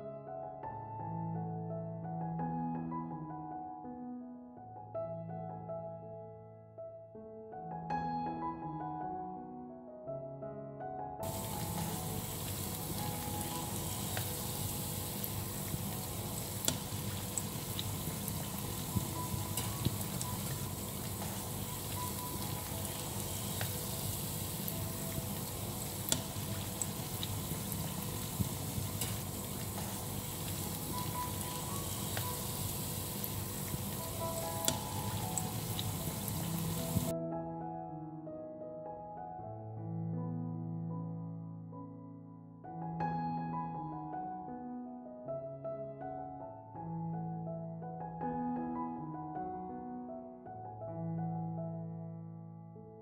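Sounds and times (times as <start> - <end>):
pastry deep-frying in oil: 11.2 - 37.1.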